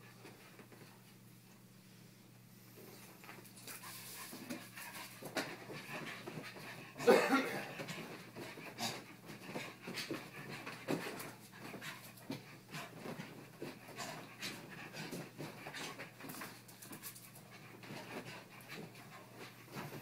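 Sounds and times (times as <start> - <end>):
puppy panting: 7.7 - 20.0.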